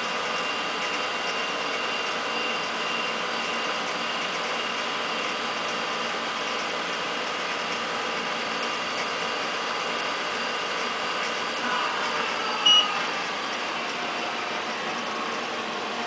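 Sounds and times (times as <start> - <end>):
scanner drum whirring: 0.0 - 16.0
whining tones: 0.0 - 16.0.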